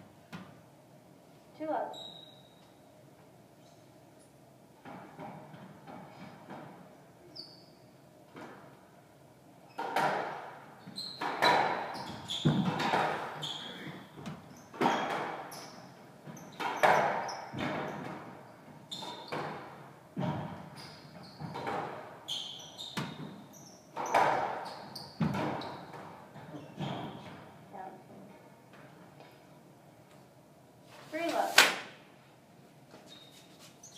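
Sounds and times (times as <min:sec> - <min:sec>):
shoe squeaks on wooden floor: 0:01.9 - 0:02.7, 0:10.8 - 0:17.6, 0:18.9 - 0:19.6, 0:20.7 - 0:21.7, 0:22.3 - 0:25.9, 0:33.0 - 0:33.9
squash ball smacking rackets and walls: 0:04.8 - 0:07.0, 0:09.7 - 0:27.6.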